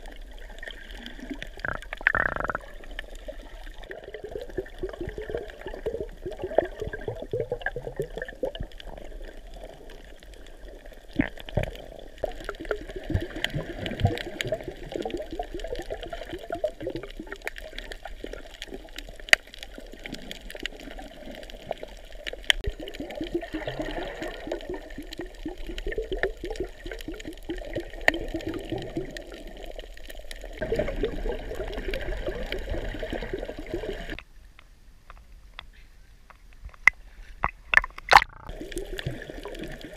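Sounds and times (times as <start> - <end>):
sharp clicks and crackles: 0.0 - 4.0, 7.6 - 23.4, 34.1 - 39.9
underwater churning and bubbling: 0.0 - 39.9.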